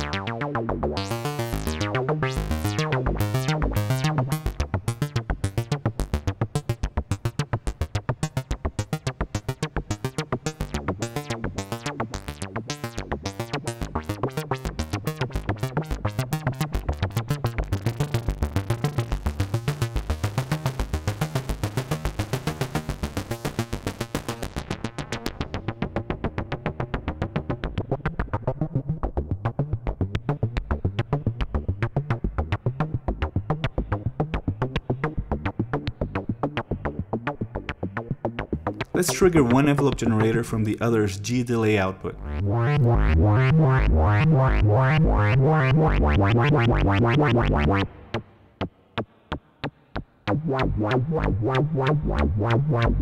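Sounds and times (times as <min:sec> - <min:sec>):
synthesizer sequencer pattern: 0:00.0 - 0:06.7, 0:10.0 - 0:20.4, 0:42.2 - 0:47.9.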